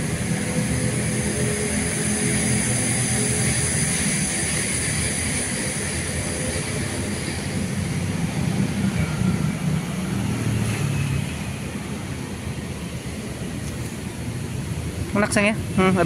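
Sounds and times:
low traffic rumble: 0:00.0 - 0:16.0.

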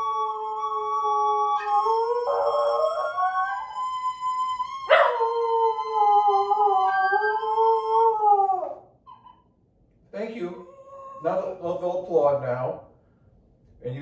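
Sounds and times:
small dog howling: 0:00.0 - 0:09.4.

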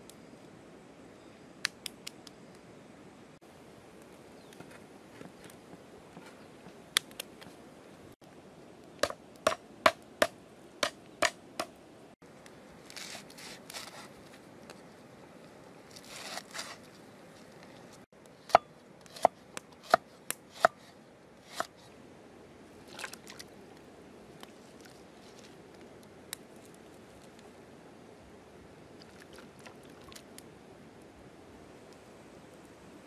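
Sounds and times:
soft hissy sounds: 0:00.0 - 0:33.0.

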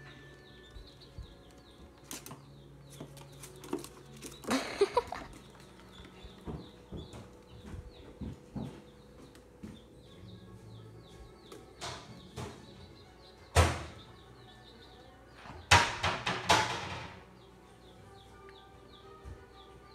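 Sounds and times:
baby chicks peeping: 0:00.0 - 0:19.9.

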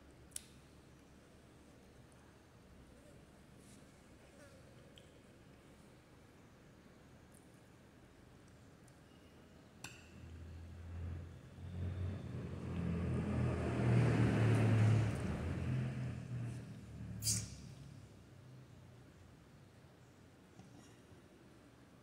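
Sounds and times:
vehicle engine passing by: 0:10.3 - 0:18.1.

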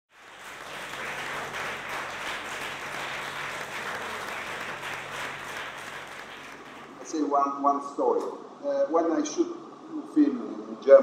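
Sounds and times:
audience applauding: 0:00.1 - 0:07.1.

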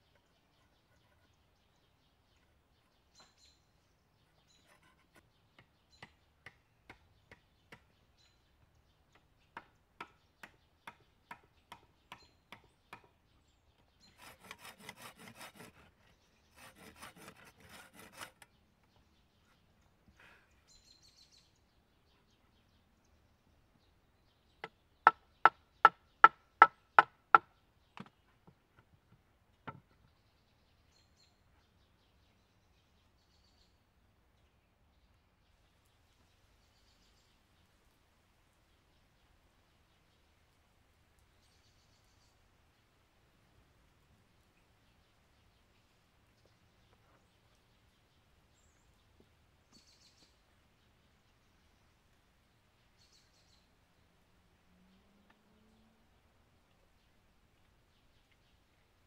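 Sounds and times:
rapid rasping saw strokes: 0:14.0 - 0:18.5.

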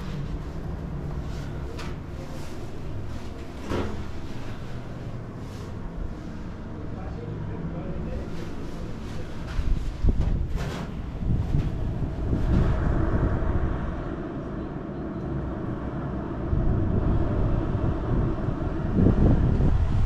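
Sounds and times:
wind buffeting microphone: 0:08.5 - 0:20.0.

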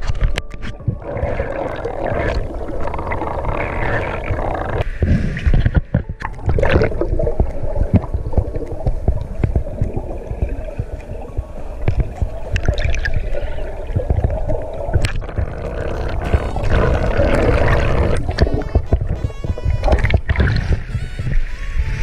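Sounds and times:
low rumbling underwater noise: 0:00.0 - 0:22.0.

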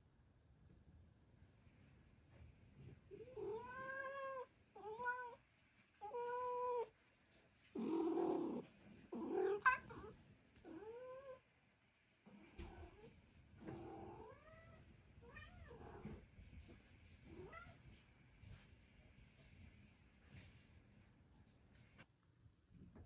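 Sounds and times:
cat meowing: 0:03.2 - 0:05.4, 0:06.0 - 0:06.9, 0:09.2 - 0:11.4.

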